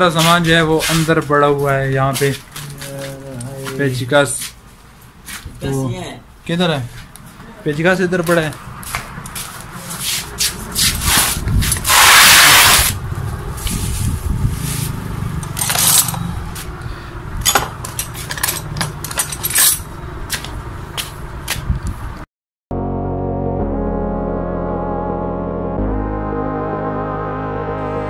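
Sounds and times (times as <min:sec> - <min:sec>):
metal hand tools clinking: 0:15.4 - 0:16.3, 0:17.4 - 0:19.9.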